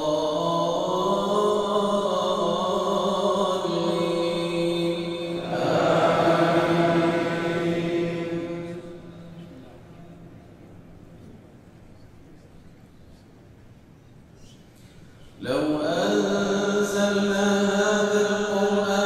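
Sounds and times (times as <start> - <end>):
man chanting melodically: 0.0 - 9.6, 15.4 - 19.0.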